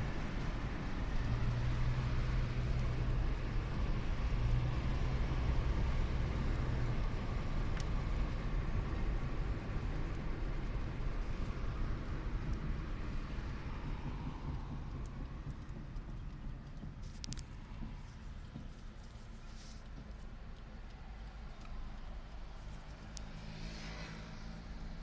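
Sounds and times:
road and engine noise: 0.0s - 25.0s.

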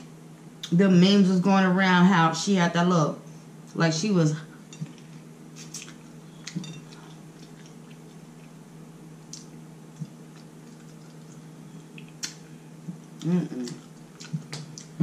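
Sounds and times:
steady low hum: 0.0s - 15.0s
person chewing: 4.8s - 8.6s, 9.3s - 15.0s
mouth clicks and smacks: 9.3s - 15.0s.

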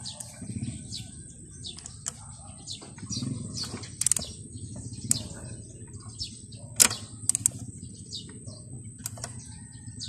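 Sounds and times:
birds chirping: 0.0s - 10.0s
ratchet wrench clicking: 4.0s - 4.2s, 6.8s - 7.6s.

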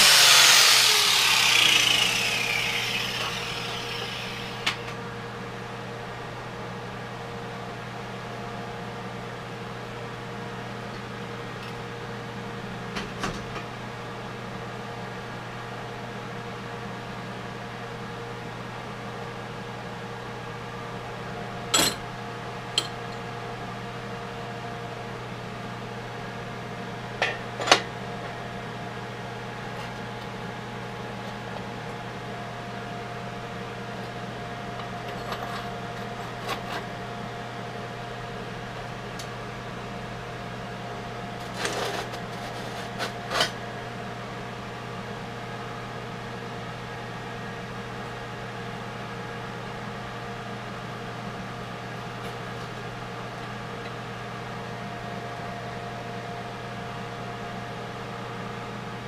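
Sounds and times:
fan whirring: 0.0s - 5.6s
electrical hum: 0.0s - 6.2s.

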